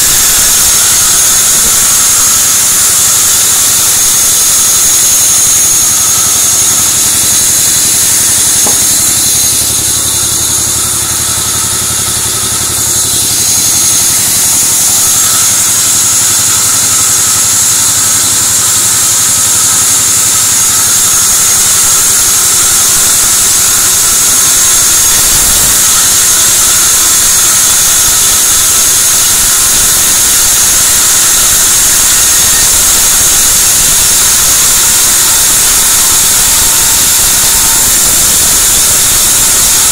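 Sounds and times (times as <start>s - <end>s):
band saw cutting timber: 0.0s - 39.9s.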